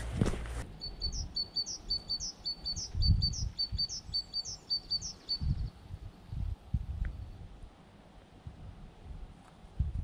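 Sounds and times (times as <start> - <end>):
small bird singing: 0.7 - 6.4.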